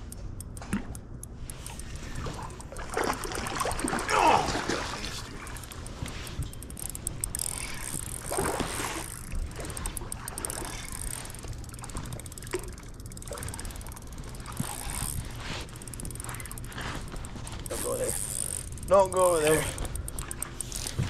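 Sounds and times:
fishing reel clicking: 0.0s - 21.0s
water splashing: 1.7s - 16.8s.

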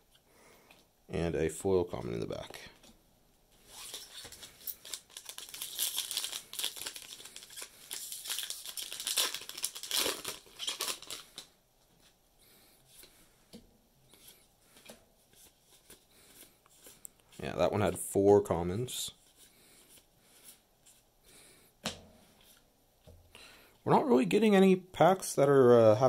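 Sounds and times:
foil wrapper crinkling and tearing: 3.7s - 11.5s.

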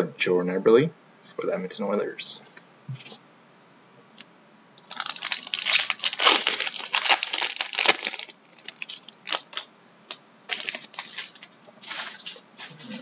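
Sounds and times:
foil wrapper tearing and crinkling: 4.8s - 12.9s.

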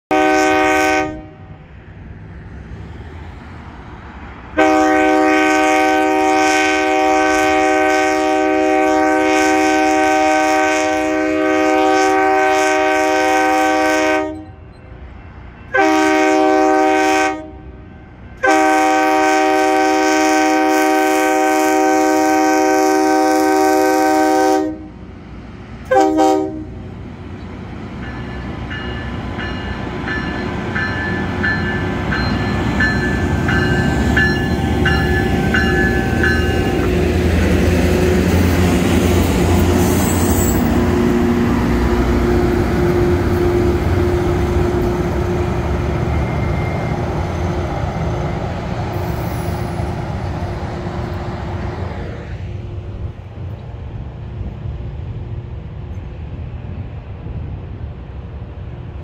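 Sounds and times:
train air horn blasts: 0.1s - 1.6s, 4.6s - 14.6s, 15.7s - 25.0s, 25.9s - 26.9s, 32.8s - 47.6s.

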